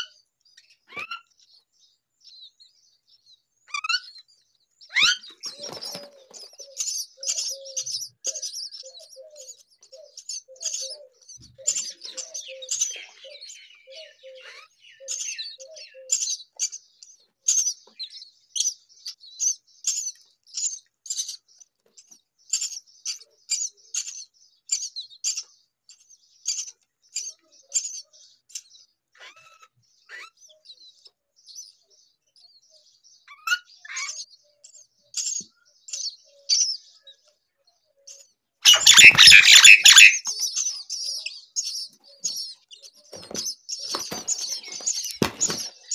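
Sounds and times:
bird wingbeats: 0:05.4 - 0:06.6, 0:43.1 - 0:45.9
nestlings cheeping: 0:38.7 - 0:45.9.

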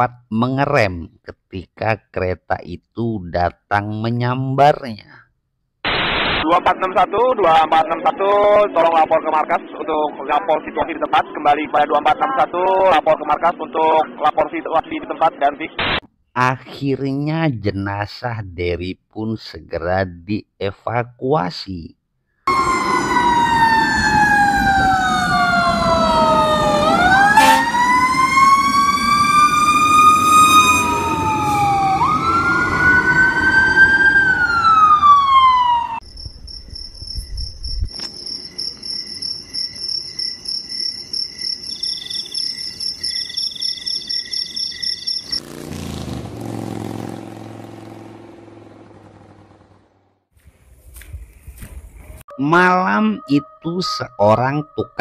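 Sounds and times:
emergency sirens wailing: 0:22.5 - 0:36.0, 0:52.3 - 0:55.0
high-pitched electronic pulsing: 0:36.1 - 0:45.4.

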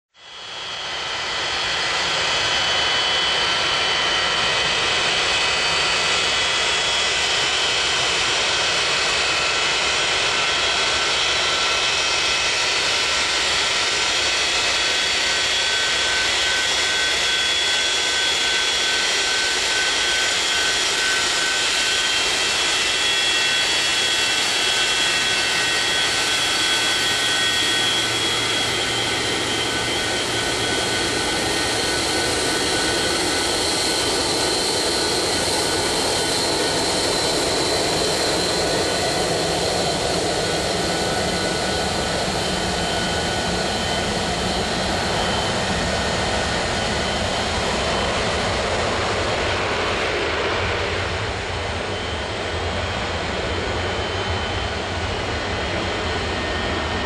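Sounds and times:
jet engine whine and roar: 0:00.1 - 0:57.0.

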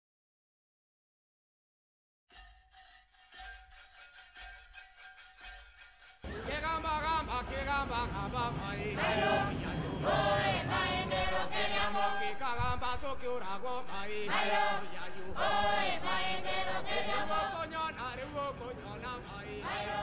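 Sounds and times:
choir singing long held notes: 0:06.2 - 0:20.0.

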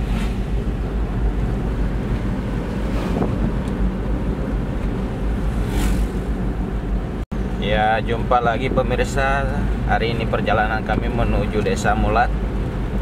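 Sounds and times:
truck engine and road rumble: 0:00.0 - 0:13.0
wind on microphone: 0:01.4 - 0:06.4.

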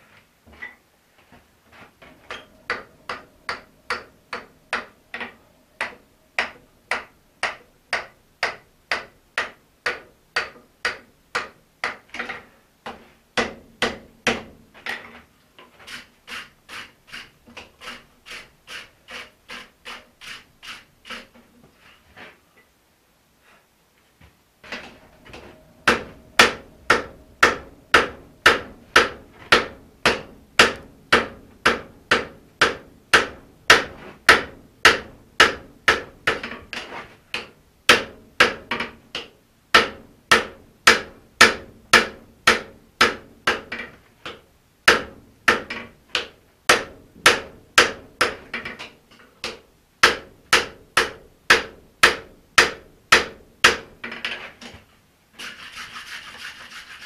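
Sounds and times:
hammer striking hot metal: 0:24.8 - 0:32.3.

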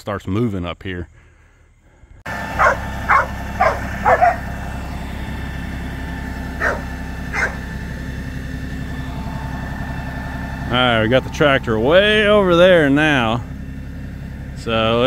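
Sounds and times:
tractor diesel engine running: 0:02.2 - 0:15.0
dog barking: 0:02.6 - 0:04.4, 0:06.6 - 0:07.7.

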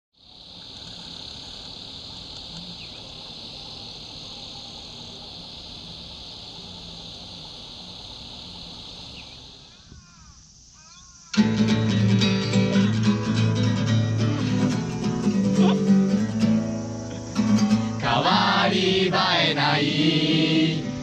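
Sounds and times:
cicadas buzzing: 0:00.2 - 0:21.0.

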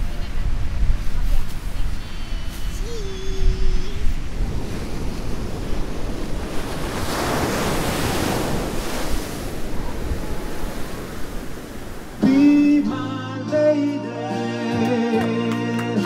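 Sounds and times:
wind buffeting microphone: 0:00.0 - 0:12.4
ocean wave breaking: 0:00.0 - 0:13.1.

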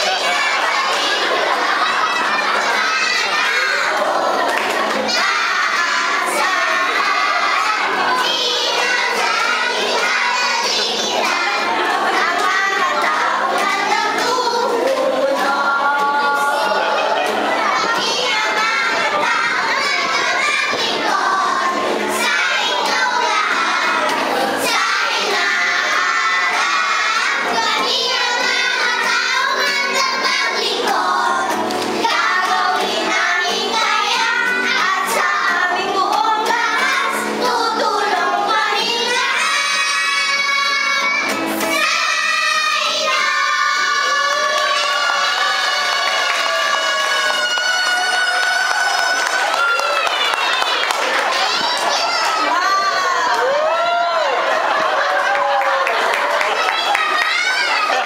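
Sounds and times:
children singing in unison: 0:00.0 - 0:58.0.

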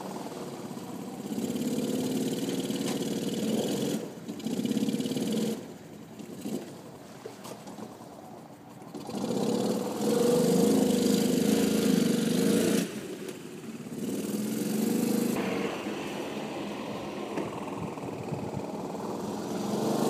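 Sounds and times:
golf cart engine revving: 0:00.0 - 0:07.0, 0:07.9 - 0:20.0.

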